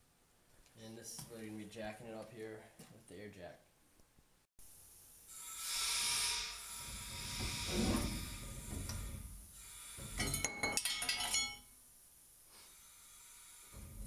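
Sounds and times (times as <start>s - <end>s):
air hissing: 4.6s - 10.4s, 12.3s - 14.0s
air jack rumble: 5.3s - 10.4s, 12.5s - 14.0s
metal bolts clanking on concrete: 10.2s - 11.7s.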